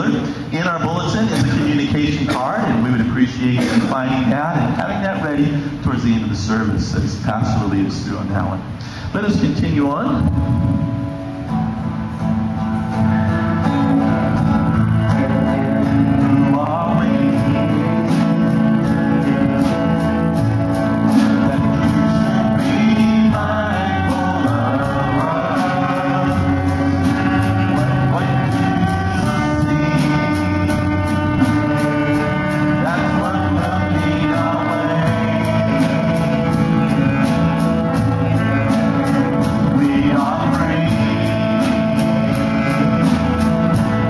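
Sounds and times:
guitars playing: 0.0 - 8.8, 9.4 - 44.0
keyboard playing: 0.0 - 8.8, 9.4 - 44.0.

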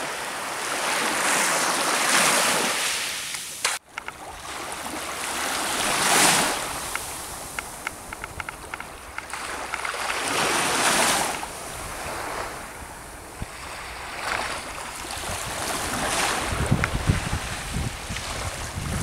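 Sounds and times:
small waves washing on shore: 0.0 - 19.0
wind buffeting microphone: 5.6 - 19.0.

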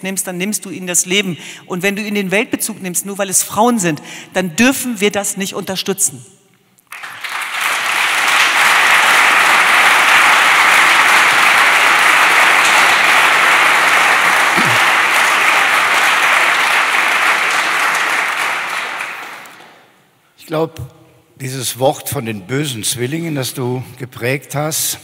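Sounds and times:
audience applauding: 6.9 - 20.0.

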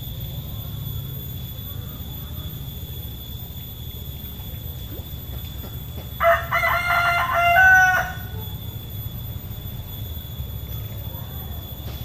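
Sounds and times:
rooster crowing: 6.2 - 8.7.

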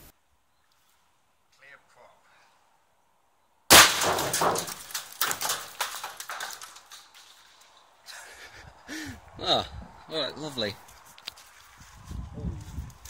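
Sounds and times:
loud gun blast: 3.7 - 4.8.

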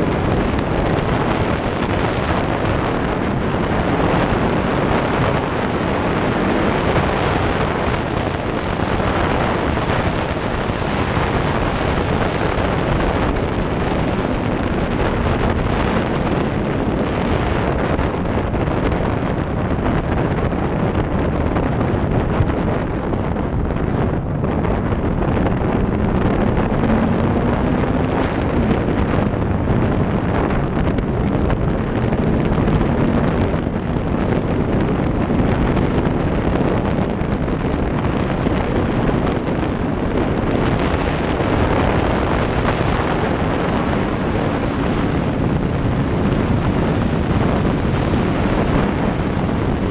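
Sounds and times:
wind buffeting microphone: 0.0 - 49.9
motorcycle engine running: 22.2 - 39.2.

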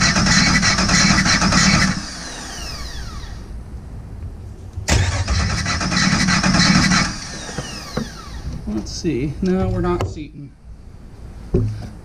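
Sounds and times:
engine starter cranking: 0.0 - 3.2, 4.9 - 8.5
starter whine: 0.0 - 3.5, 4.9 - 8.7.

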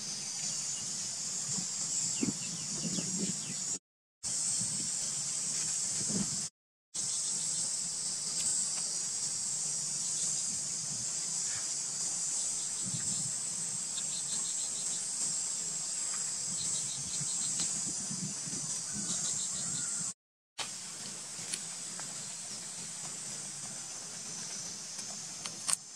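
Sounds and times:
high-pitched insect chorus: 0.0 - 20.2, 20.8 - 25.9
quick insect chirps: 0.0 - 20.2.

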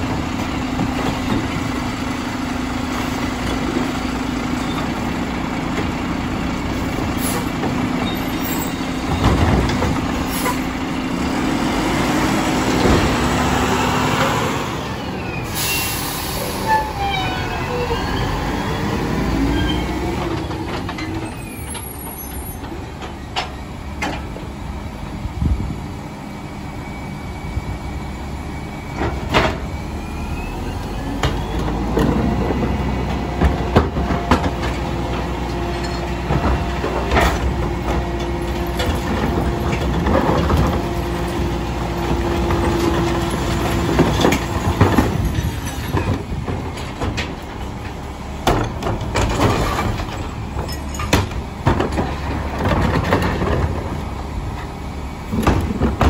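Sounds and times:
garbage truck diesel engine: 0.0 - 56.0
trash cart knocks and clunks: 8.9 - 10.7, 28.9 - 29.8, 31.1 - 56.0.

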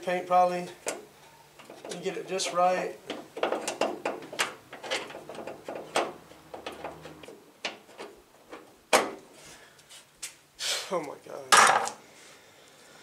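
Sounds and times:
metal door handle clicks and scrapes: 3.1 - 8.7.

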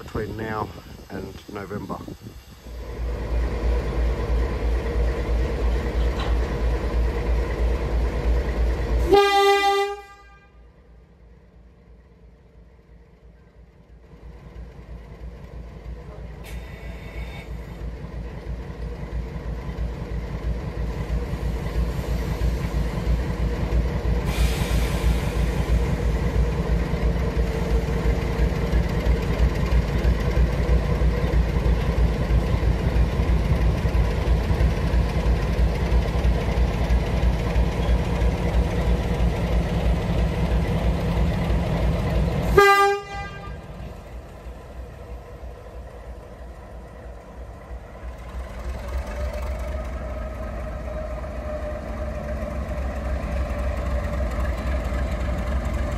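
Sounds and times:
diesel locomotive engine throbbing: 0.0 - 55.9
train horn toot: 9.0 - 10.7, 42.5 - 43.8.

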